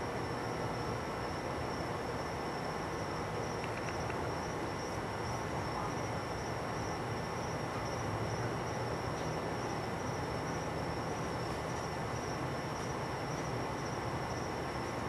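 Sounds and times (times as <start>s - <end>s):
constant high-pitched whine: 0.0s - 15.0s
low rumble and hiss: 0.0s - 15.0s
faint ticks: 3.6s - 4.2s.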